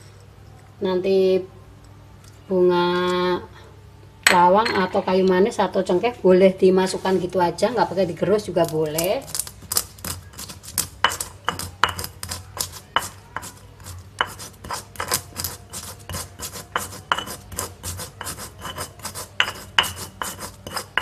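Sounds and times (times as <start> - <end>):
stone pestle grinding in mortar: 8.4 - 21.0.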